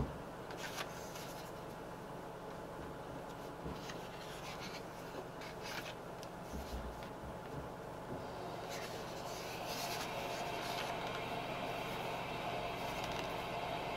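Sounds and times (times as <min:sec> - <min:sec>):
sketchbook pages turning: 0:00.5 - 0:01.7, 0:03.3 - 0:07.2, 0:08.6 - 0:13.5.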